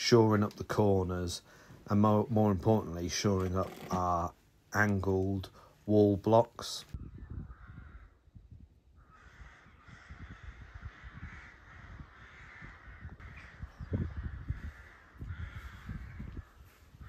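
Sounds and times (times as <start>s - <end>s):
crows cawing: 7.5s - 8.3s, 9.0s - 17.0s.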